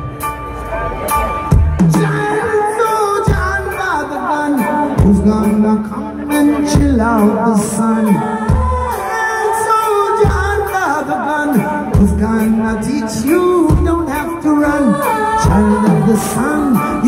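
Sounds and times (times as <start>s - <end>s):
deep bass notes: 0.0s - 17.0s
drums: 0.0s - 17.0s
live band music: 0.0s - 17.0s
person singing: 0.6s - 17.0s.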